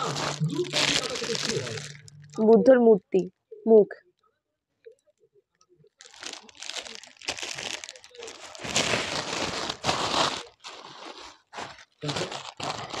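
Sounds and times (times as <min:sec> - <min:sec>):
plastic wrapping crinkling: 0:00.0 - 0:02.4, 0:06.0 - 0:13.0.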